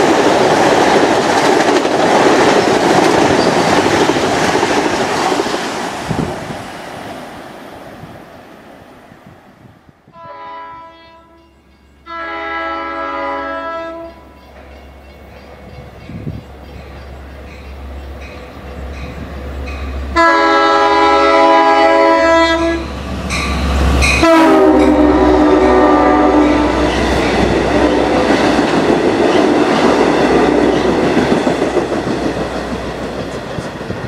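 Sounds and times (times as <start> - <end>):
train horn blasts: 10.1 - 14.4, 20.1 - 23.0, 24.0 - 28.4.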